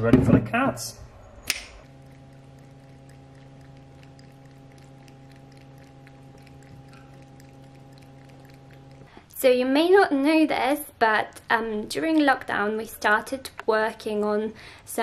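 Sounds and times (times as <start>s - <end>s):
switch click: 1.5s - 1.8s
small pump humming: 1.6s - 9.4s
water pouring and trickling: 1.8s - 9.2s.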